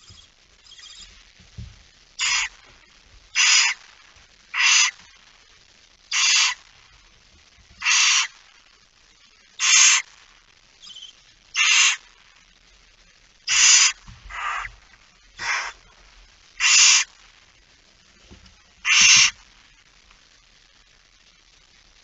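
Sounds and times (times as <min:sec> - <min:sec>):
barn owl hissing: 0:02.2 - 0:02.6, 0:03.4 - 0:03.8, 0:04.5 - 0:05.1, 0:06.1 - 0:06.6, 0:07.8 - 0:08.4, 0:09.6 - 0:10.1, 0:10.8 - 0:12.1, 0:13.5 - 0:14.8, 0:15.4 - 0:15.9, 0:16.6 - 0:17.1, 0:18.8 - 0:19.4.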